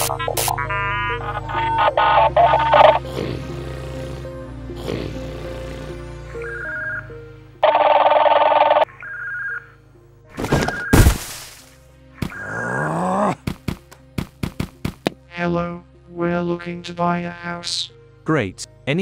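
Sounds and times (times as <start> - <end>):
background music: 0.0 - 19.0
cartoon telephone ringing beeps: 0.6 - 3.0, 7.6 - 9.7.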